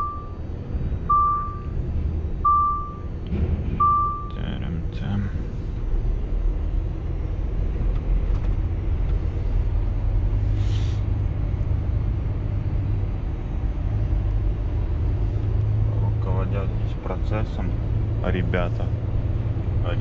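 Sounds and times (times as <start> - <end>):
truck diesel engine running: 0.0 - 20.0
short air hiss: 10.6 - 11.0.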